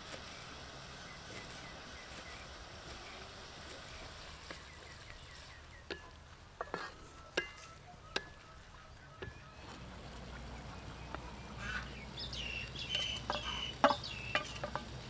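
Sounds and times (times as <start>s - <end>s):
wooden spatula knocking pan: 5.8s - 8.5s, 12.9s - 14.9s.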